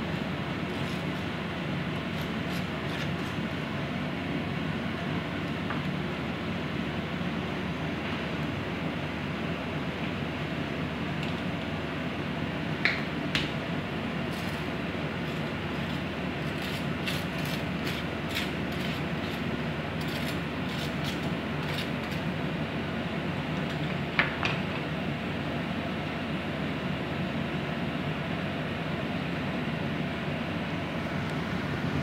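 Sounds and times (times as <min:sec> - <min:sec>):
knife scraping sauce on toast: 0:15.8 - 0:22.2.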